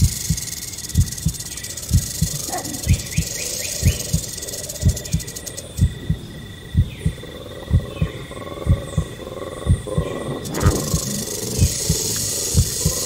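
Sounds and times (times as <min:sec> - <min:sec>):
rattlesnake rattle buzzing: 0:00.0 - 0:06.0, 0:10.3 - 0:13.0
heartbeat thumps: 0:00.0 - 0:13.0
high insect tones: 0:00.0 - 0:13.0.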